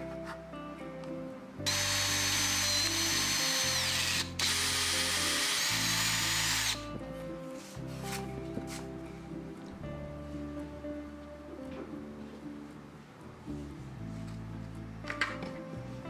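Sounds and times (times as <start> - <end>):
electric drill boring into wood: 1.7 - 6.8.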